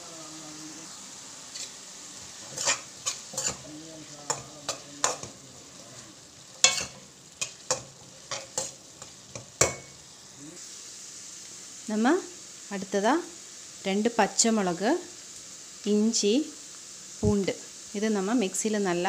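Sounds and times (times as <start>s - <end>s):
oil sizzling: 0.0s - 19.0s
metal spoon scraping a pan: 1.5s - 10.0s.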